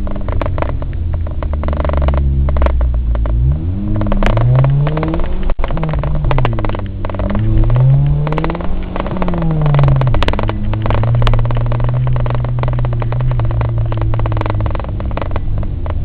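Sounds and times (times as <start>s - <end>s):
body rattles and knocks: 0.0s - 16.0s
engine revving hard: 3.4s - 15.2s.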